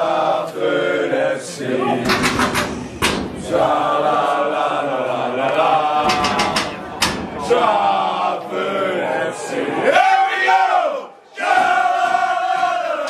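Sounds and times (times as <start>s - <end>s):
football crowd chanting: 0.0s - 13.0s
sharp hits: 6.0s - 7.8s.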